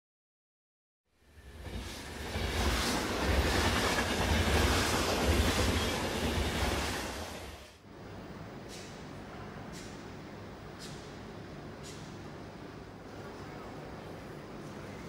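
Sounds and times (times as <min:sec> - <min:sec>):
train passing: 0:01.2 - 0:08.6.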